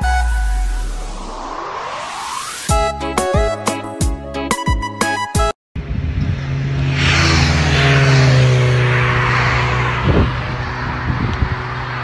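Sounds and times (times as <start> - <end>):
vehicle passing by: 5.8 - 12.0.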